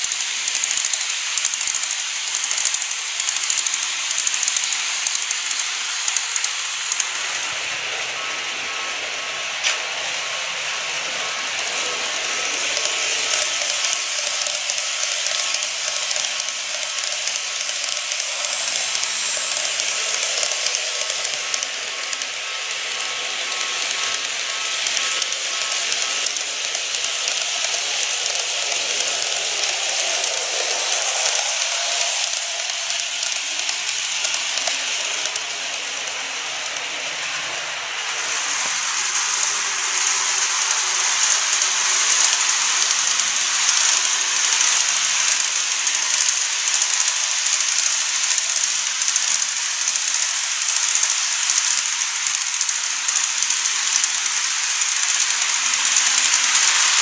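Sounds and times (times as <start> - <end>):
faint motor whine: 0.0 - 57.0
model train wheels rolling on rails: 0.0 - 57.0
track click: 11.6 - 37.4.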